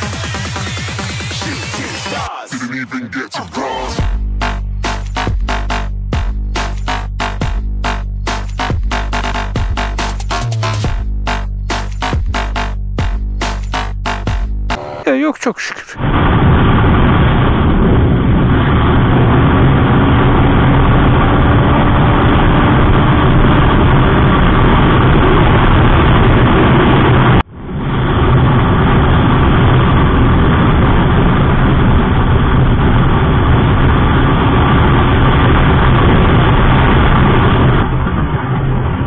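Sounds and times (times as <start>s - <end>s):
motorcycle engine at speed: 4.0s - 15.1s, 16.4s - 39.0s
wind rush on microphone: 16.0s - 39.0s.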